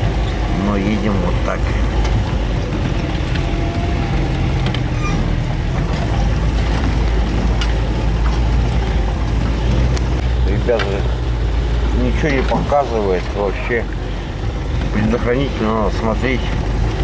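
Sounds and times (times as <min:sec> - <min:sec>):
vehicle engine running: 0:00.0 - 0:17.0
clicks and knocks from vehicle: 0:04.6 - 0:11.1.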